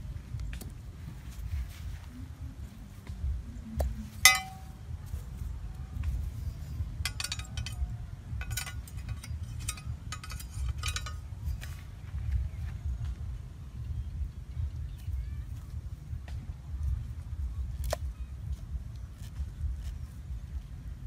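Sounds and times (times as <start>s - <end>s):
blade tapping and scraping: 3.8s - 5.4s, 6.0s - 13.2s, 17.7s - 20.8s
machete clinking against metal: 4.2s - 4.8s, 6.5s - 11.9s.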